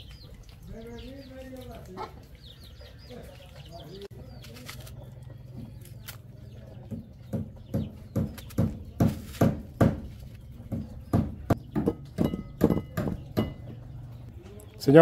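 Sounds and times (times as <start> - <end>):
knocks of food preparation: 6.7 - 13.9.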